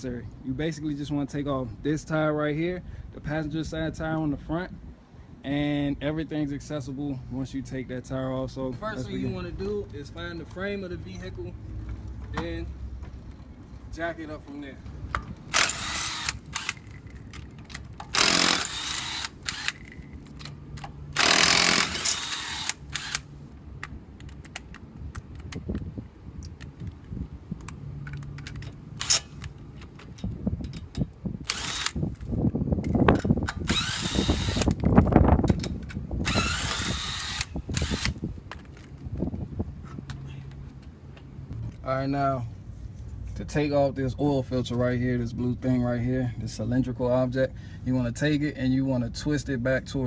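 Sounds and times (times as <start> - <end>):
impact wrench hammering: 15.5 - 17.4, 18.0 - 20.2, 21.2 - 23.2
small clicks and knocks: 23.8 - 31.1.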